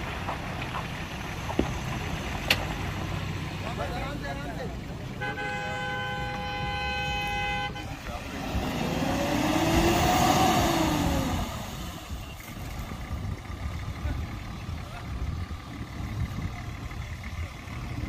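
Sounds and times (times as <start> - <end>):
off-road vehicles rumbling: 0.0 - 18.0
vehicle horn: 5.1 - 8.4.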